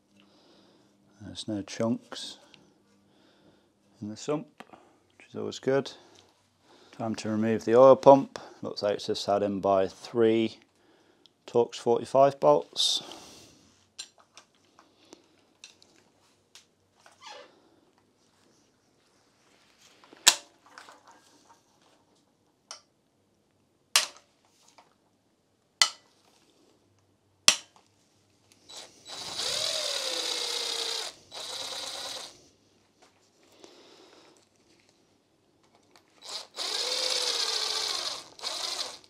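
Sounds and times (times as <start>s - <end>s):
cordless ratchet spinning: 28.7s - 32.3s, 36.2s - 39.0s.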